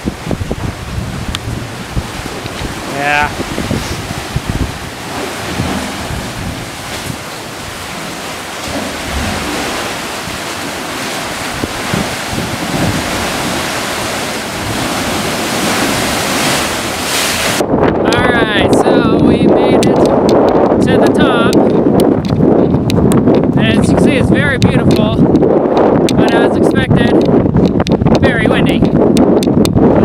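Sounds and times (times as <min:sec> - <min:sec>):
ocean surf churning in rocks: 0:00.0 - 0:22.3
wind buffeting microphone: 0:00.0 - 0:30.0.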